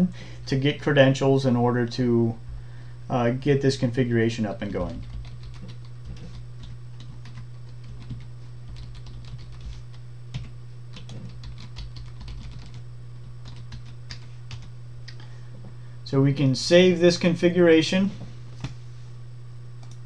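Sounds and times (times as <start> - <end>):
steady low hum: 0.0 - 20.0
keyboard typing clicks: 4.7 - 12.8.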